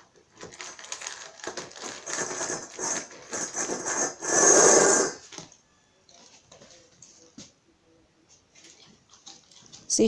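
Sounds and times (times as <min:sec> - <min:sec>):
kibble scraping in metal bowl: 0:02.0 - 0:04.8.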